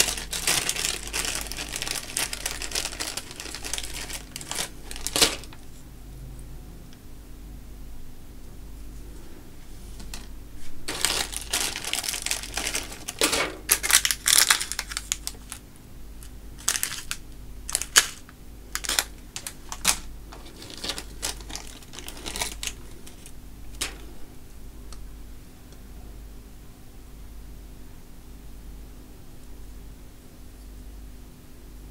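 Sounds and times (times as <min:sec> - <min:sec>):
plastic bags crinkling: 0:00.0 - 0:05.6, 0:10.0 - 0:24.2.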